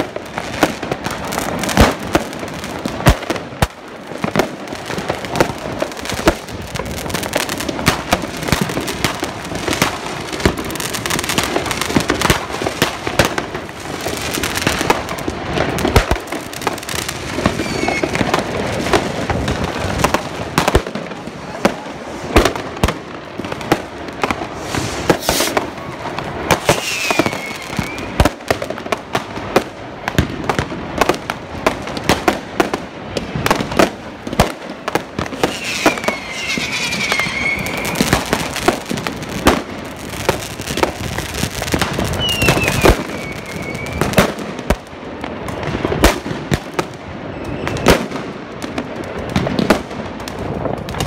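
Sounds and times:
fireworks bangs and crackles: 0.0 - 51.0
whistling firework: 16.9 - 20.7, 23.7 - 28.6, 35.2 - 44.4, 47.2 - 48.3.

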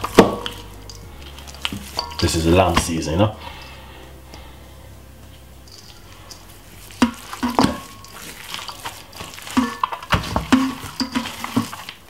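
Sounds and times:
hands squishing raw meat: 0.0 - 3.2, 5.7 - 12.0.

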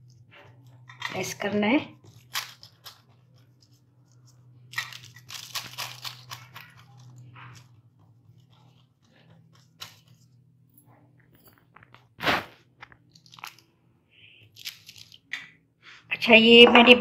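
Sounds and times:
paper crinkling: 2.0 - 10.5, 11.6 - 13.7, 14.4 - 15.3.

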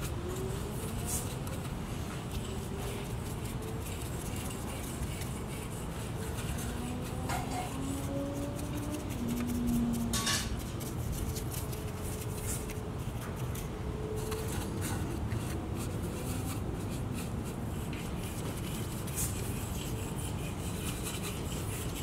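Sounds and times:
paintbrush scrubbing on rough surface: 0.2 - 22.0
brush clicking on metal tin: 6.5 - 7.8.

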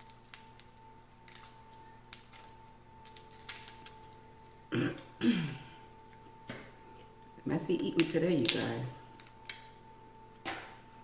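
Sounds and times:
shellfish shell cracking: 0.0 - 4.6, 8.4 - 9.8.

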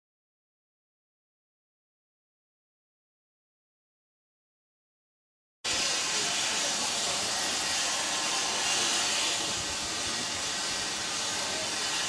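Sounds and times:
steam locomotive hissing: 5.7 - 12.0.

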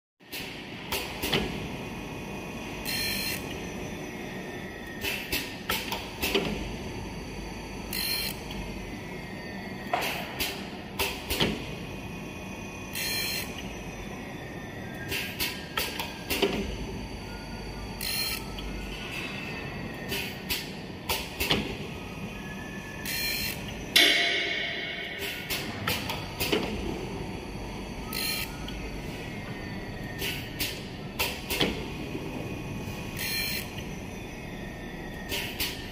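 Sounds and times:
loud knock with ringing tail: 24.0 - 25.5.

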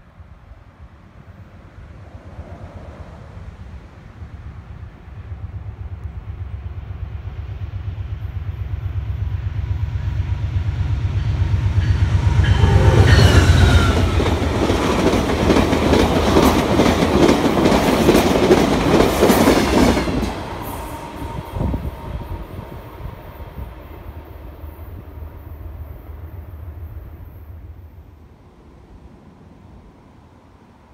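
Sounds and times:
diesel locomotive rumble: 1.9 - 29.0
train wheels clicking on rails: 8.4 - 22.8.

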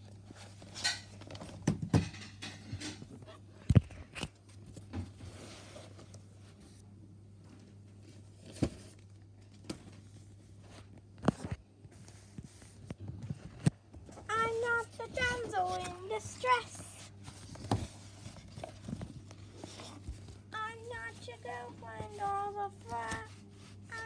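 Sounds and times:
steady low hum: 2.1 - 24.0
paper rustle: 14.6 - 24.0.

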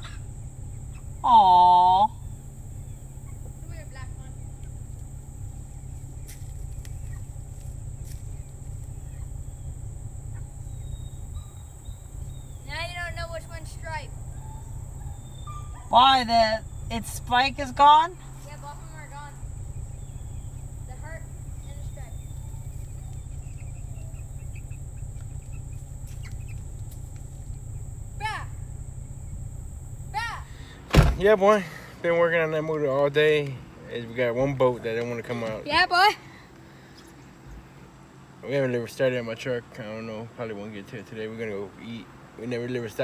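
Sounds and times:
high-pitched insect drone: 0.0 - 30.8
steady low rumble: 0.0 - 35.3
chickens clucking: 21.7 - 27.5.

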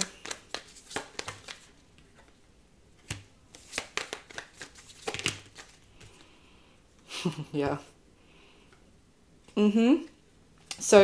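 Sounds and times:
cards being shuffled: 0.0 - 2.4, 3.0 - 6.3.

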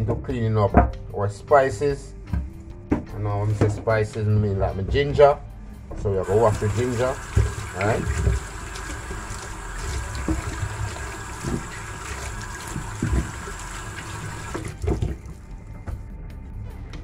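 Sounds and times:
hands scrubbing ginger: 6.2 - 15.4
tap water splashing into sink: 6.2 - 15.4
ginger knocking against sink: 6.3 - 9.2, 10.0 - 15.3.

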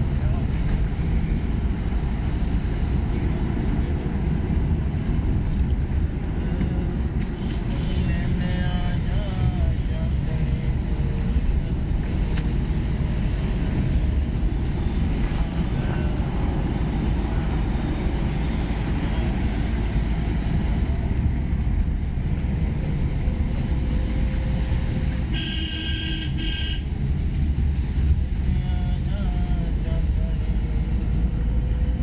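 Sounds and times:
road and wind rumble in car: 0.0 - 32.0.

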